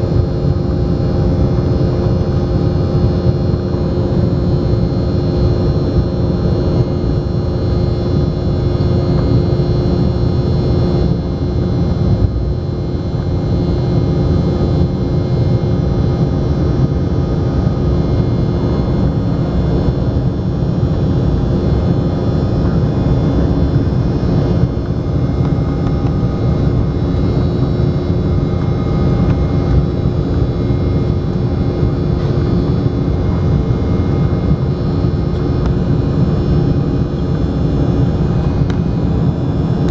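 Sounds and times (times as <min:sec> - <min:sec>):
engine whining tones: 0:00.0 - 0:39.9
jet engine cabin rumble: 0:00.0 - 0:39.9.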